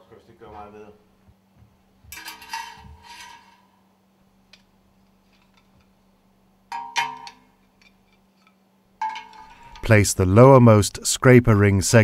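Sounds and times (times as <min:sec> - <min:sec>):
metal rings clinking: 0:02.1 - 0:03.6, 0:06.7 - 0:08.2, 0:09.0 - 0:09.9.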